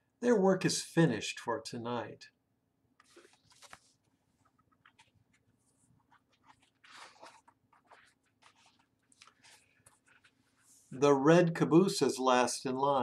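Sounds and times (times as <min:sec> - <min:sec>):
book pages rustling: 0:03.0 - 0:10.9.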